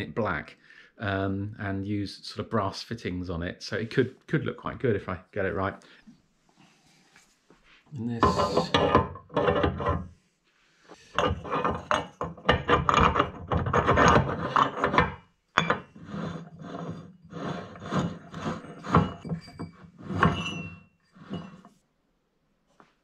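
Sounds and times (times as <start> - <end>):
metal parts scraping and rubbing: 8.2 - 10.1, 10.9 - 21.8.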